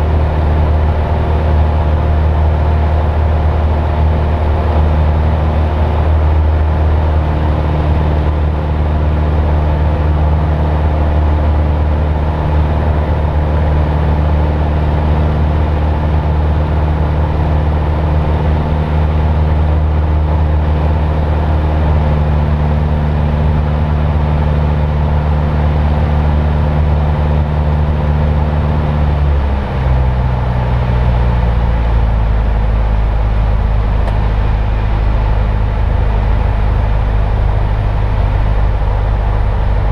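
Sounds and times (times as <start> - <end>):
airplane engine and propeller drone: 0.0 - 39.9.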